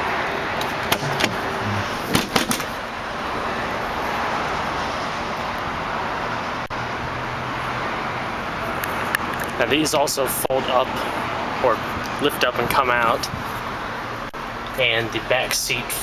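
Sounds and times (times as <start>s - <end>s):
tailgate latch clicking: 0.6s - 1.4s, 2.1s - 2.8s
tailgate clunking open: 0.6s - 2.8s.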